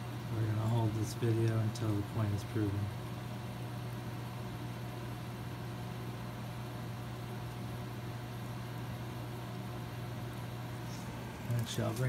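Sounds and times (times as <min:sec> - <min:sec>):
sump pump motor humming: 0:06.0 - 0:12.0.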